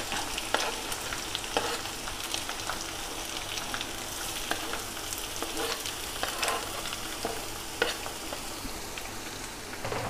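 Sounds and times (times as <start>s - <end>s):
frying in hot oil: 0.0s - 10.0s
spoon scraping cutting board: 1.6s - 1.8s, 5.4s - 8.0s.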